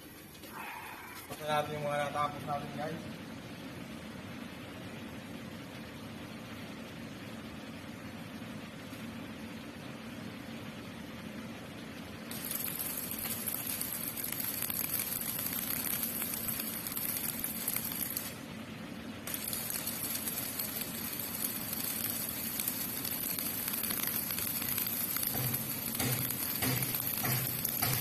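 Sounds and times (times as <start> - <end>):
arc welding crackling hiss: 12.3 - 18.5, 19.2 - 28.0.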